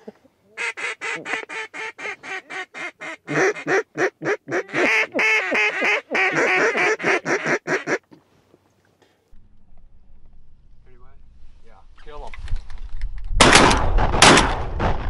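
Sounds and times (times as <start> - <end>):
duck calls quacking: 0.6 - 8.1.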